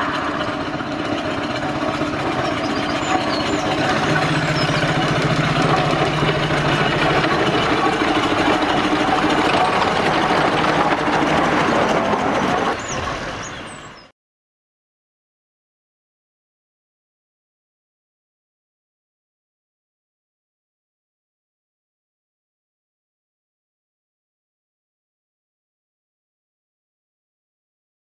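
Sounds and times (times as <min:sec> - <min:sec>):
steam tractor running: 0:00.0 - 0:14.1.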